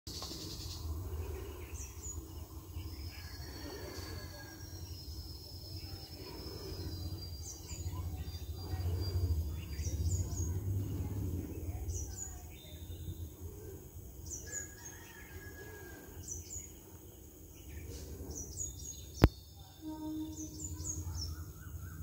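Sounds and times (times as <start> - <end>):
low rumble: 0.3 - 14.9
faint voices murmuring: 0.8 - 22.0
bird chirps: 14.2 - 22.0
thin high whistles: 19.7 - 21.6.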